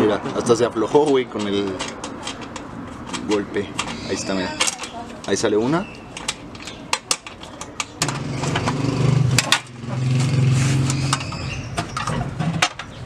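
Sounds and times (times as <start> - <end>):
metallic clicks of bolt and nut: 1.0 - 4.0, 6.1 - 8.8
engine running: 8.0 - 12.8.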